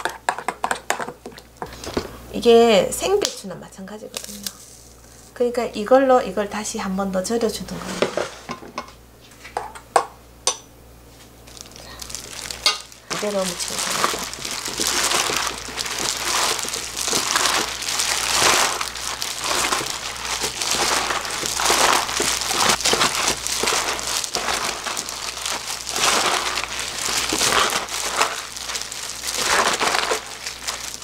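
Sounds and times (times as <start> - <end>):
plastic gloves crinkling: 3.2 - 5.4, 11.1 - 31.0
cabbage leaves rustling: 11.4 - 31.0.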